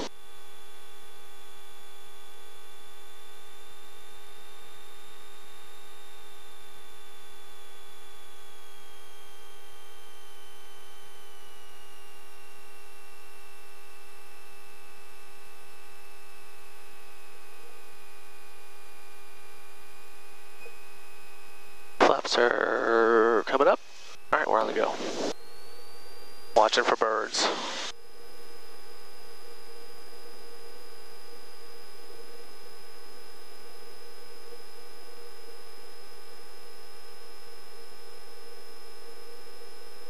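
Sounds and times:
headset intercom electrical hum: 0:20.5 - 0:40.0
high whine falling in pitch: 0:20.6 - 0:40.0.

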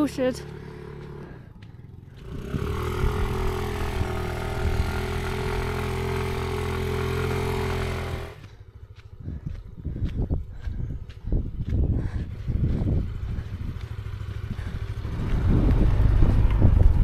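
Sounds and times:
scooter engine at high revs: 0:00.0 - 0:17.0
wheel spinning in sand: 0:02.2 - 0:08.4.

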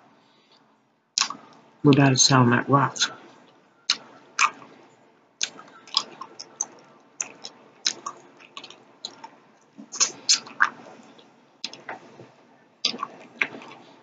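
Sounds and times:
chewing gummy mouth smacks: 0:01.2 - 0:01.4, 0:03.9 - 0:04.7, 0:05.4 - 0:11.9, 0:12.8 - 0:13.8.

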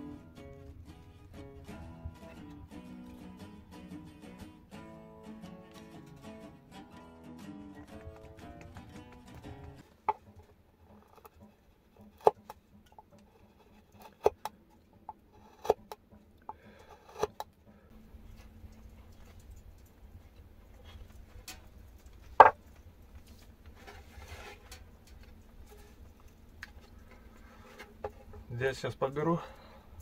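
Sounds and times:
chisel cutting into wood: 0:15.4 - 0:16.0, 0:16.8 - 0:17.4.

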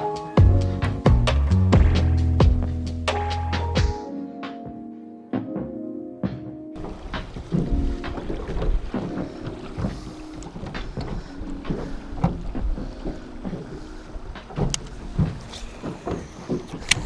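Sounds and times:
oars knocking and creaking: 0:05.4 - 0:17.0
river water: 0:06.8 - 0:17.0
wind buffeting microphone: 0:06.8 - 0:17.0.

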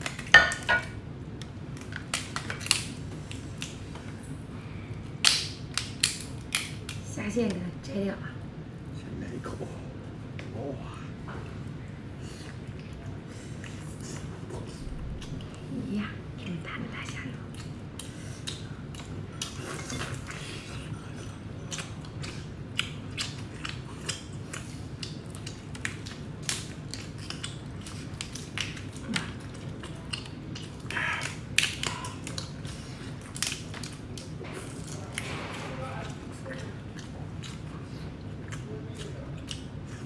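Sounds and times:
steady low hum: 0:00.0 - 0:40.0
chewing: 0:17.1 - 0:40.0.

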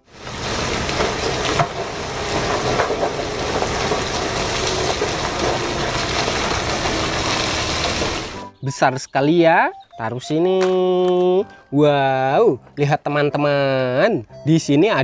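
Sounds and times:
rock sliding off truck bed: 0:00.0 - 0:08.5
falling stones knocking: 0:00.3 - 0:08.5.

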